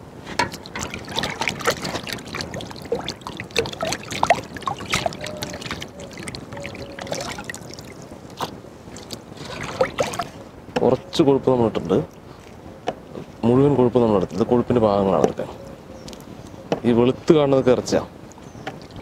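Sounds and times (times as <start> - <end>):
water splashing: 0.3 - 10.5
drips falling into water: 0.4 - 8.1.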